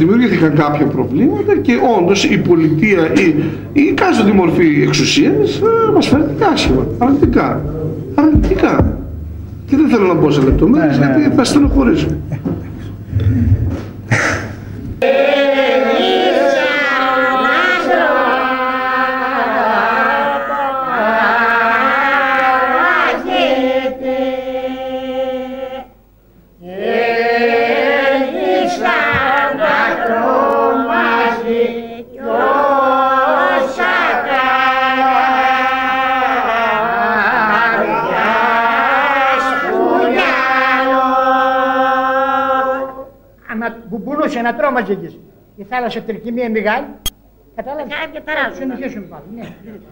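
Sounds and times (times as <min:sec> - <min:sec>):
low vocal drone: 0:02.0 - 0:26.0, 0:26.6 - 0:43.3
voices chanting: 0:15.0 - 0:26.0, 0:26.6 - 0:43.3.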